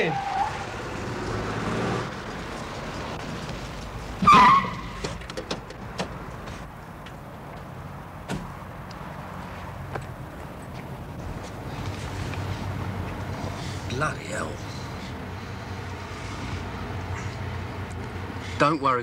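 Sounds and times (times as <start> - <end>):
loud squeal: 4.2 - 5.0.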